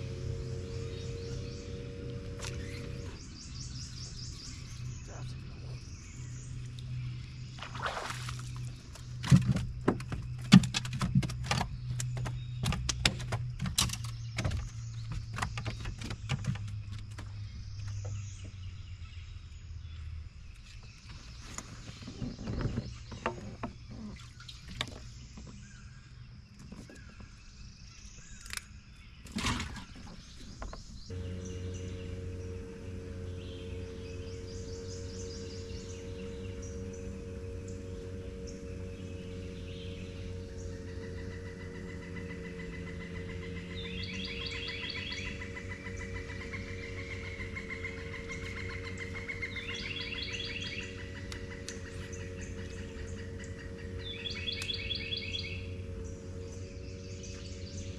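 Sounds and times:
steady low hum: 0.0 - 29.2, 30.2 - 57.9
birds chirping trills: 0.0 - 57.9
sharp clicks and knocks: 8.9 - 18.2.

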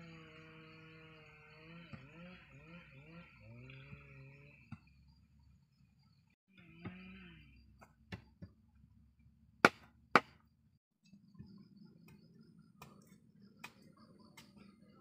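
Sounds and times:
machete knocking bamboo: 9.6 - 10.4.

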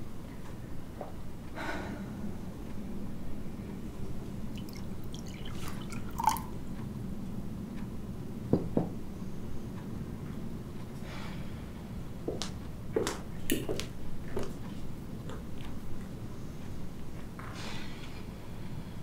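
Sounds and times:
liquid pouring into a glass: 4.5 - 6.6
liquid splashing: 4.5 - 6.6.

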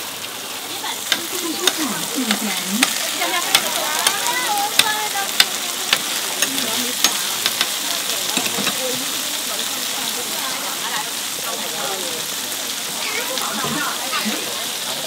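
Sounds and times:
tofu sizzling in oil: 0.0 - 15.0
metal spatula tapping and scraping: 1.1 - 8.9.

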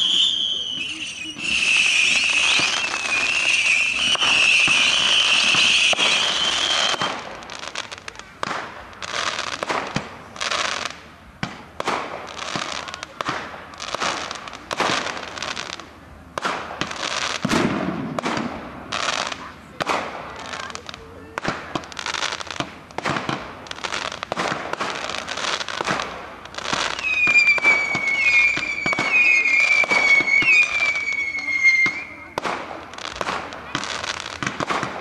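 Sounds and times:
fireworks bangs and crackles: 0.0 - 35.0
fireworks hissing: 0.0 - 35.0.

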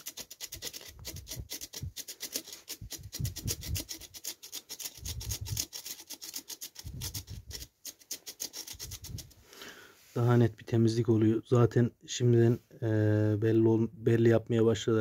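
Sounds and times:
spark plug scraping on wire brush: 0.0 - 9.4.

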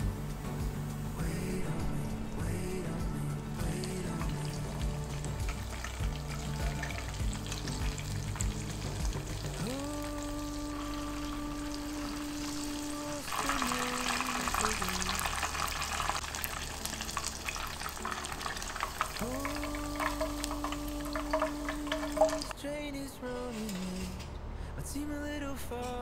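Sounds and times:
background music: 0.0 - 26.0
chicken deep-frying in hot oil: 4.1 - 22.6.

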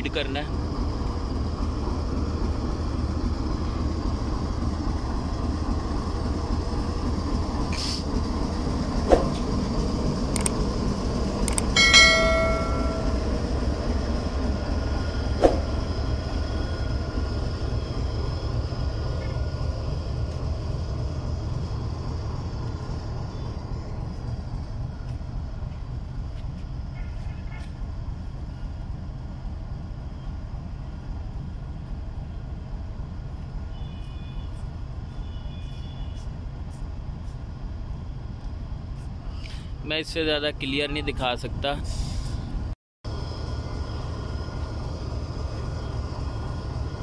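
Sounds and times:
locomotive idling rumble: 0.0 - 26.3, 41.8 - 47.0
air hiss: 7.7 - 8.1
sharp clicks: 10.3 - 10.6.

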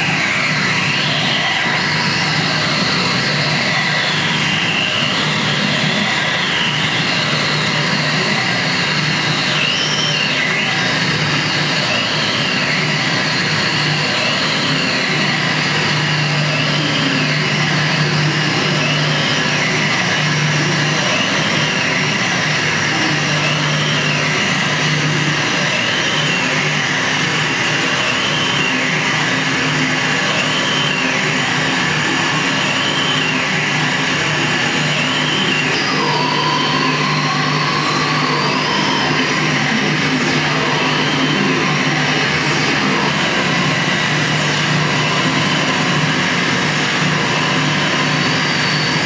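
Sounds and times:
high warbling tones: 33.9 - 49.0.

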